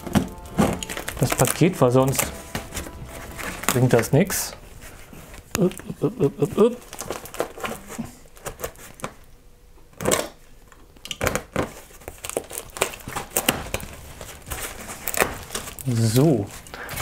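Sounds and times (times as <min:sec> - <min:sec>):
tape and cardboard crackling: 0:00.0 - 0:09.3, 0:09.9 - 0:16.7
knife slitting packing tape: 0:11.1 - 0:14.0.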